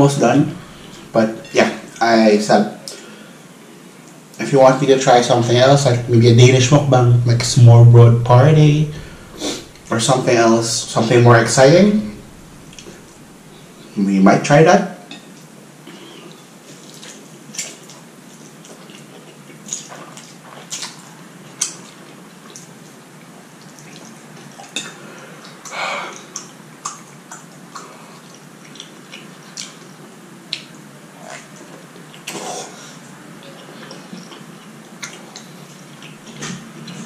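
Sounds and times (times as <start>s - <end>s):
mouth clicks and smacks: 16.8s - 22.7s, 25.5s - 29.9s, 33.4s - 37.0s.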